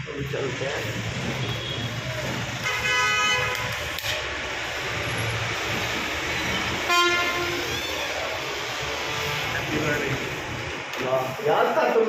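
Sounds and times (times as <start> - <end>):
vehicle horn honks: 1.4 - 2.0, 2.6 - 3.8, 6.8 - 7.7.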